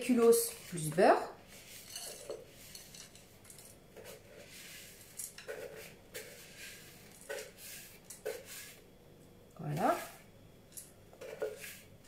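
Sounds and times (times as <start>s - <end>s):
spatula scraping plastic bowl: 3.9s - 8.8s, 11.1s - 11.9s.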